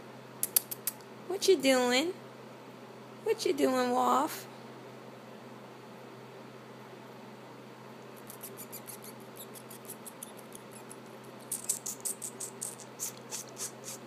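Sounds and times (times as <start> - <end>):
high-pitched squeaks: 8.3 - 14.0.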